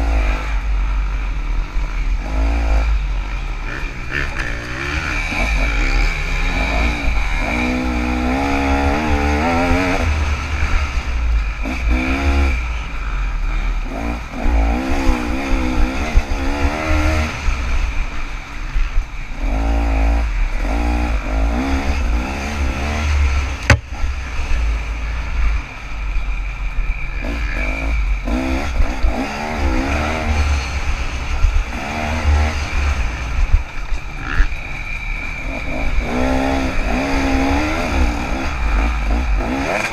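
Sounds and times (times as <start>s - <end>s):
dirt bike engine revving: 0.0s - 25.7s, 26.9s - 39.9s
low wind rumble: 0.0s - 39.9s
sharp knock: 23.7s - 24.0s.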